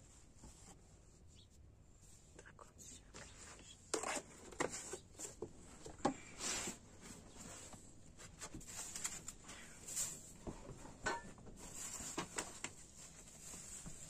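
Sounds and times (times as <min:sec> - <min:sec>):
metal bowls knocking and clinking: 0:11.0 - 0:11.4
flour rustling: 0:11.6 - 0:14.0.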